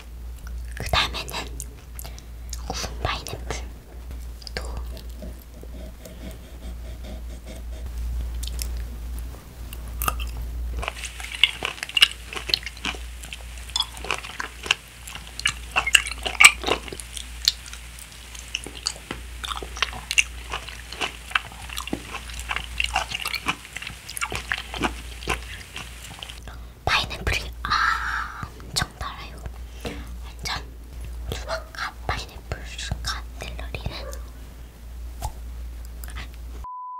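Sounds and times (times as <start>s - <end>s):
person chewing crunchy food: 4.2s - 9.0s, 9.7s - 26.5s.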